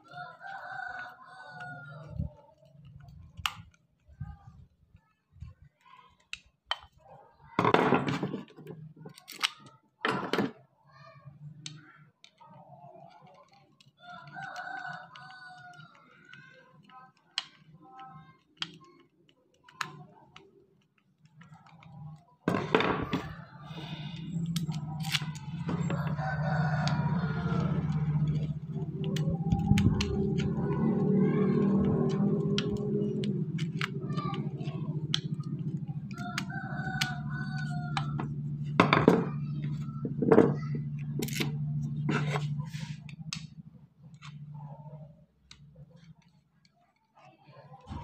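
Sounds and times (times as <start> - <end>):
rooster crowing: 0.0 - 2.1, 14.0 - 16.0, 24.8 - 32.2, 36.0 - 38.3
screwdriver scraping and knocking: 41.2 - 43.1.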